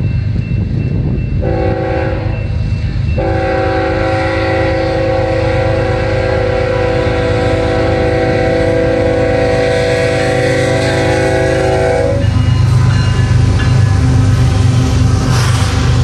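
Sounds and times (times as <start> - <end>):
diesel locomotive rumble: 0.0 - 16.0
locomotive horn chord: 1.4 - 2.4, 3.2 - 12.4.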